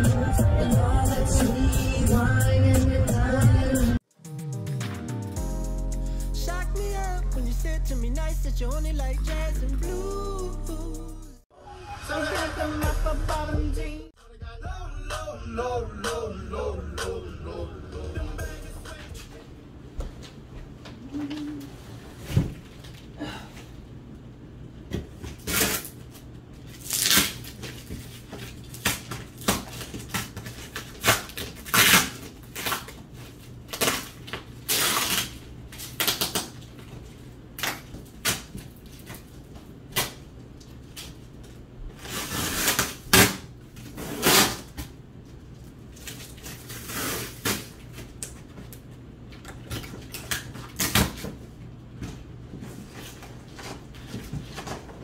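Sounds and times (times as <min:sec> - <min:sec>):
cardboard flaps tearing and rustling: 0:25.2 - 0:36.8
packing tape ripping: 0:25.3 - 0:36.8, 0:37.6 - 0:39.3, 0:39.9 - 0:40.2, 0:42.0 - 0:44.9, 0:46.0 - 0:48.4, 0:49.6 - 0:51.4.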